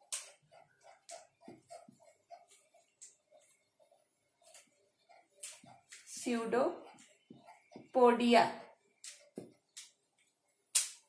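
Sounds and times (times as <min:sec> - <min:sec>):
marker squeaking on whiteboard: 0:00.0 - 0:08.1, 0:08.9 - 0:10.4.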